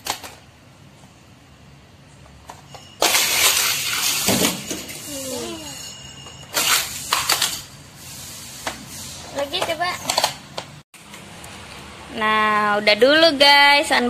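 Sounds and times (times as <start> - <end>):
plastic toy cars clattering: 0.0 - 0.4, 2.4 - 5.1, 6.5 - 7.7, 9.5 - 10.7
child vocal sound: 5.0 - 5.9.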